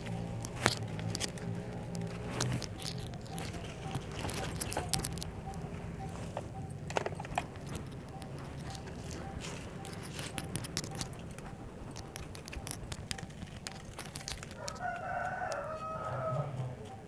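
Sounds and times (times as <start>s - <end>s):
rooster crowing: 14.6s - 16.8s.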